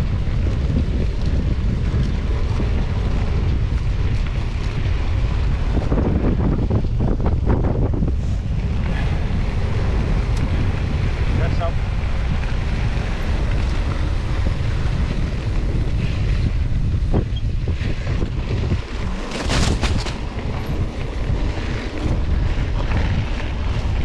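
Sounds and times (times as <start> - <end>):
bike clicking and clatter: 0.0 - 24.0
wind buffeting microphone: 0.0 - 24.0.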